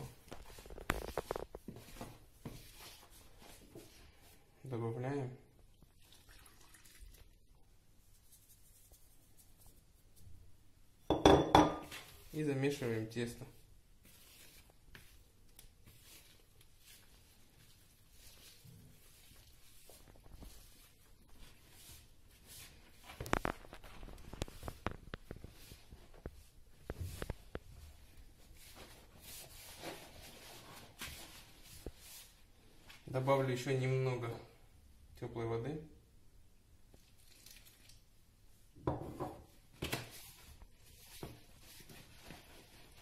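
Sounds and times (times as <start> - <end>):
dough squelching: 0.0 - 4.5, 13.5 - 33.0.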